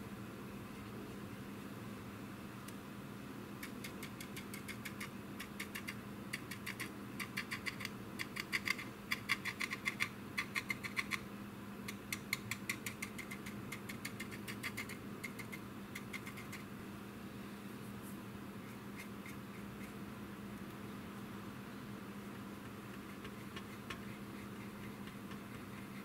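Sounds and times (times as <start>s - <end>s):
paintbrush scrubbing on plastic: 23.0s - 26.0s.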